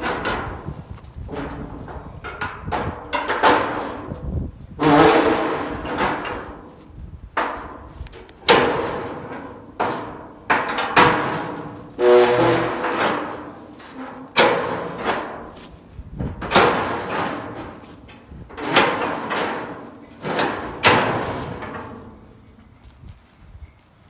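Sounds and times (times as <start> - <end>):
hammer striking steel rail: 8.5 - 15.5.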